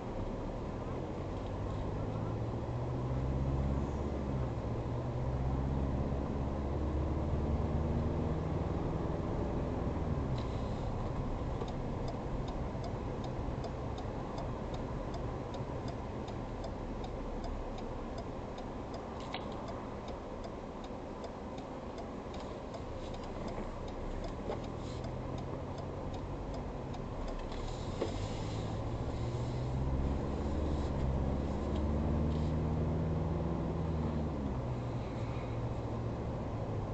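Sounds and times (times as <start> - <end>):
road and engine noise in cabin: 0.0 - 36.9
light regular ticking: 10.0 - 32.6.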